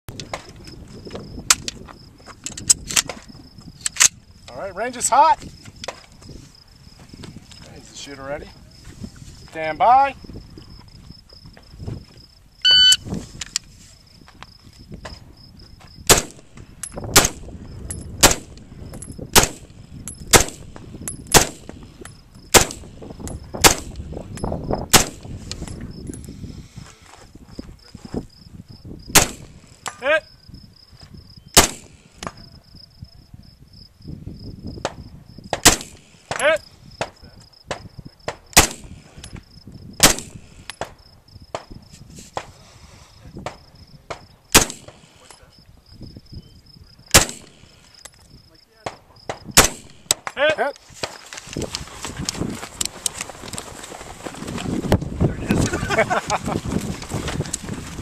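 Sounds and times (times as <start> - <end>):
faint gunshots: 16.1 - 16.5, 18.2 - 18.6, 19.4 - 19.7, 20.3 - 21.7, 22.5 - 22.9, 24.9 - 25.2, 29.1 - 29.6, 31.6 - 32.4, 35.5 - 39.0, 40.0 - 40.6, 43.5 - 45.3, 47.1 - 47.8, 48.8 - 50.3
rifle shots: 16.1 - 17.5, 18.2 - 18.6, 19.3 - 21.8, 22.5 - 23.0, 23.6 - 24.0, 24.9 - 25.3, 29.1 - 29.9, 31.6 - 32.3, 35.5 - 36.4, 38.6 - 39.1, 40.0 - 40.9, 44.5 - 45.3, 47.1 - 47.8, 49.6 - 50.3.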